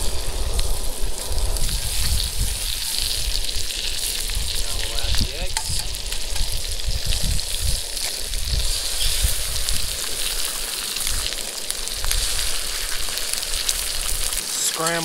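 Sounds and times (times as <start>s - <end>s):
sausages and eggs sizzling in a skillet: 0.0s - 15.0s.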